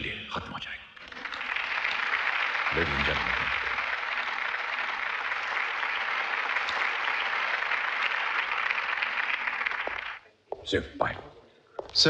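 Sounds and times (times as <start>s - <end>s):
audience applauding: 1.0s - 10.2s.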